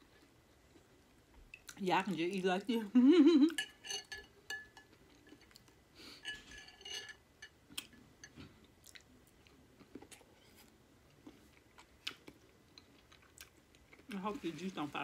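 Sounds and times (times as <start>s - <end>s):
close-up chewing: 7.8s - 14.1s.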